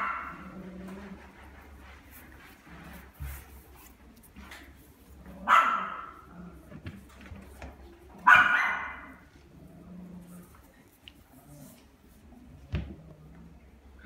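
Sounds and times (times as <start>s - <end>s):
dog barking: 0.0s - 0.3s, 5.4s - 6.2s, 8.2s - 9.2s.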